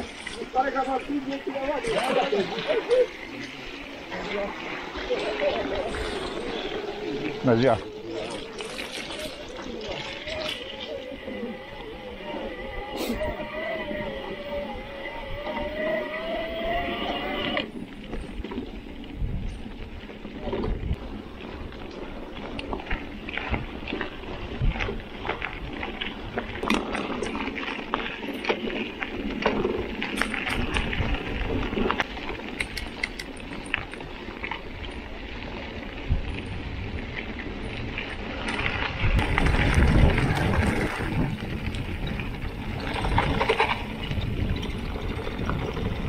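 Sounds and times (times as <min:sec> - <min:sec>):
bike rattling: 0:00.0 - 0:46.0
tyres crunching on gravel: 0:15.6 - 0:46.0.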